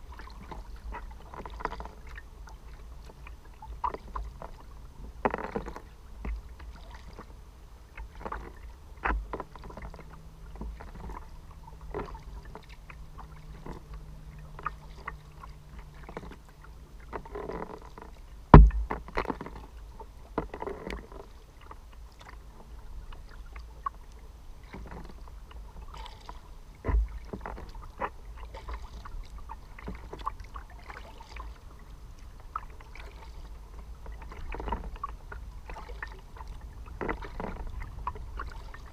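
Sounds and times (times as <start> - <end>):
faint steady hum: 0.0 - 38.9
paddle splashing in water: 0.0 - 38.9
sharp knocks: 18.6 - 19.0.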